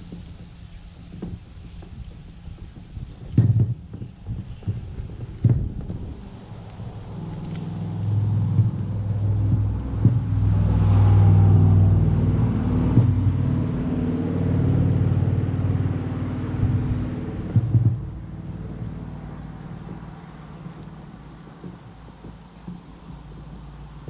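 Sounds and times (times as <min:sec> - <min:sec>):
vehicle engine passing by: 0:06.2 - 0:24.0.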